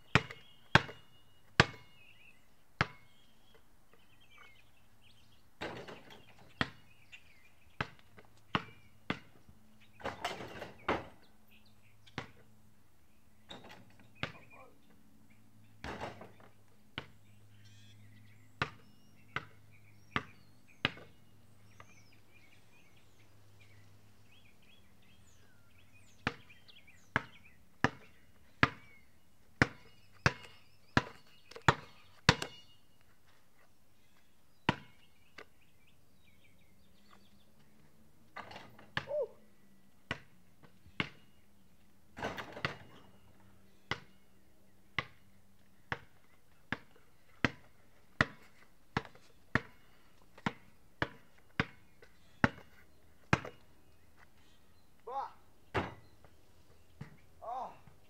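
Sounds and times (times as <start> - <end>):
birds chirping: 0.0 - 58.0
basketball bouncing on concrete: 0.1 - 2.0, 2.8 - 3.1, 5.6 - 6.9, 7.8 - 9.4, 12.1 - 12.5, 13.5 - 14.6, 15.8 - 17.2, 18.6 - 21.2, 26.2 - 32.7, 34.7 - 35.0, 40.1 - 41.3, 42.2 - 43.0, 43.9 - 44.2, 45.0 - 53.6, 57.0 - 57.2.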